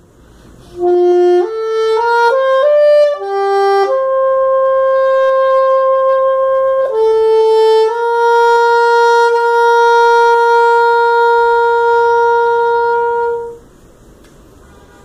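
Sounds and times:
saxophone long note: 0.6s - 13.6s.

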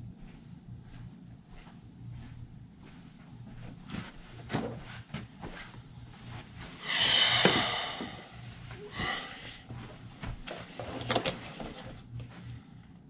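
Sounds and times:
footsteps: 0.2s - 11.0s
breathy rush sitting down: 6.8s - 9.6s.

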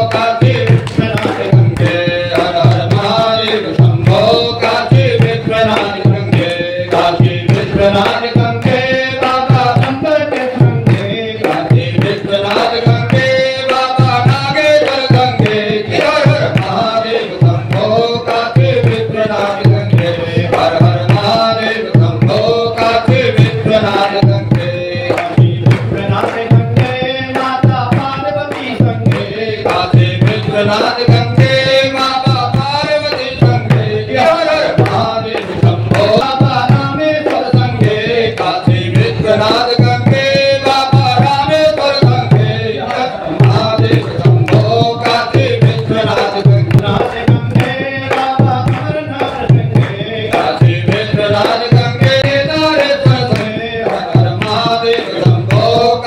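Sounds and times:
hand drum beat: 0.0s - 56.0s.

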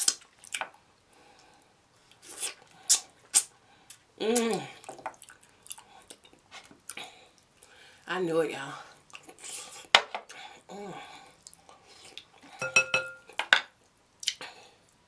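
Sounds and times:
wet eating noises: 0.0s - 7.8s, 8.9s - 10.5s
lip smacks: 2.1s - 6.3s.

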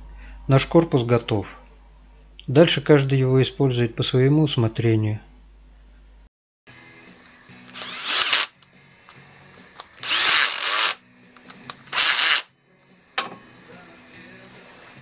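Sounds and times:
electric drill spinning up: 7.7s - 8.6s, 9.9s - 11.0s, 11.9s - 12.5s.

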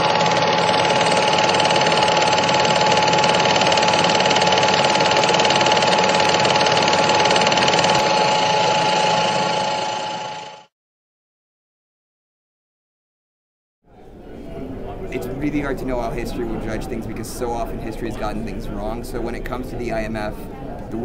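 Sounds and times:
machine running with whine: 0.0s - 10.7s.

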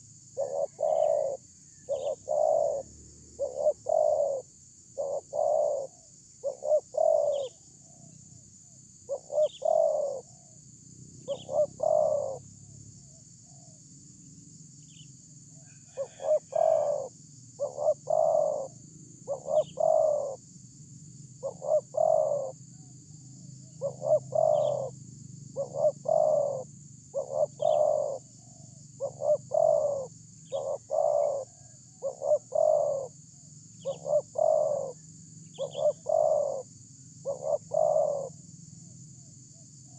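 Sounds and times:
dove cooing: 0.0s - 8.1s, 9.1s - 10.6s, 11.2s - 12.4s, 15.6s - 20.4s, 21.4s - 23.0s, 23.6s - 38.4s.

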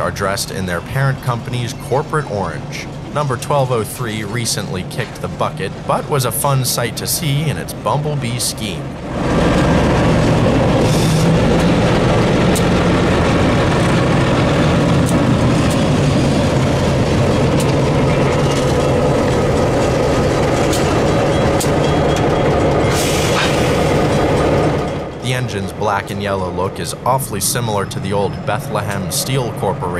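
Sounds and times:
diesel locomotive engines droning: 0.0s - 29.9s.

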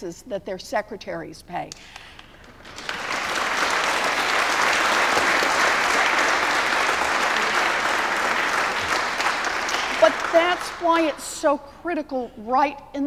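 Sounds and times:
audience applauding: 2.0s - 11.3s.

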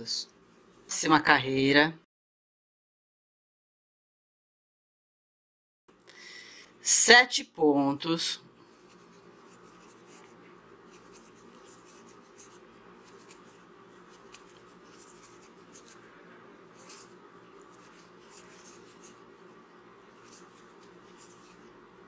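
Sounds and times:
low steady hum: 5.9s - 22.0s
crochet hook pulling yarn: 8.8s - 21.8s.

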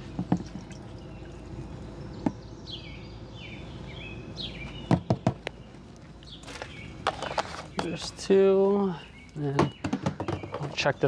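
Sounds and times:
birds chirping: 0.0s - 11.0s
plastic jug knocks: 0.2s - 0.8s, 9.5s - 10.8s.

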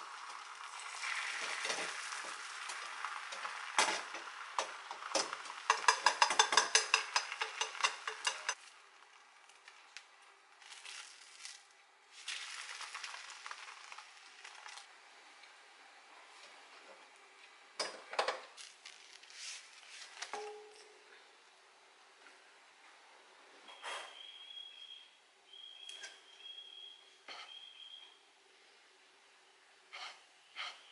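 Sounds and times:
omelette sizzling in pan: 0.0s - 9.8s, 10.5s - 14.9s
frying pan clatter: 1.1s - 8.6s.

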